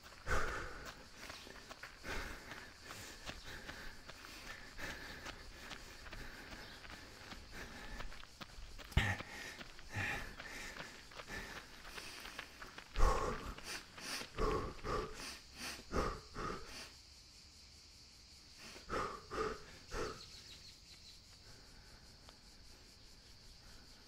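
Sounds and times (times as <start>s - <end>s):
person panting: 0.0s - 16.9s, 18.6s - 20.6s
insects droning: 0.0s - 24.0s.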